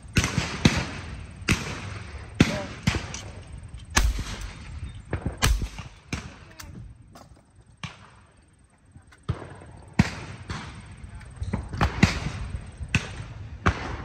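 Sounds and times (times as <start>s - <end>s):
shotgun shots: 0.2s - 6.7s.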